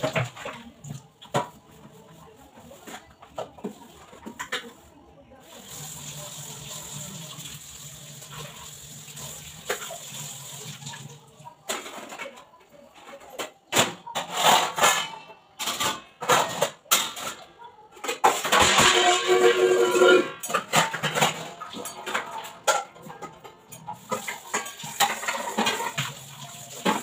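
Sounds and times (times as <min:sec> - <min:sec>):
steel pots clattering: 0:13.0 - 0:27.0.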